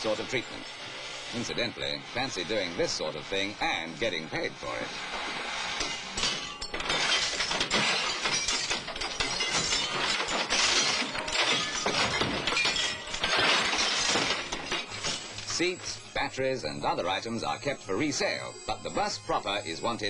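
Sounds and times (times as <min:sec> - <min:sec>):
window glass smashing: 0:05.1 - 0:16.2
falling glass tinkling: 0:05.8 - 0:16.1.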